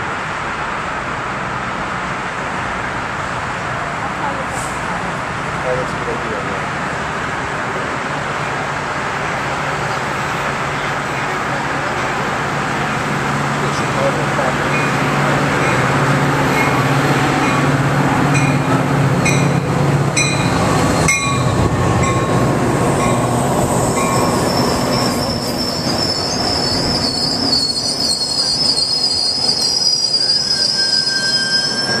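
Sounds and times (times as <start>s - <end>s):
train rumbling past: 0.0s - 32.0s
high wheel squeal: 23.8s - 32.0s.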